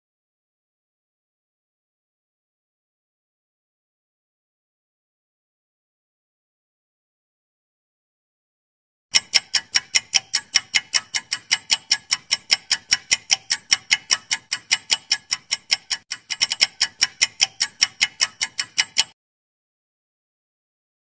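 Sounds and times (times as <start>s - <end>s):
rapid clock ticking: 9.1s - 19.2s.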